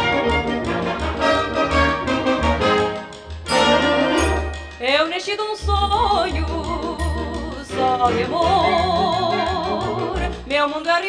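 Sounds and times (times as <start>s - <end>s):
pulsing bass beat: 0.0s - 10.8s
orchestral light music: 0.0s - 11.0s.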